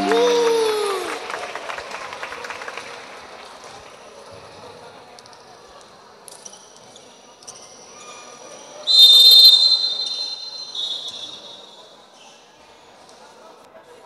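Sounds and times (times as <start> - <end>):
crowd chatter: 0.0 - 14.0
shrill high-pitched tone: 8.9 - 11.8.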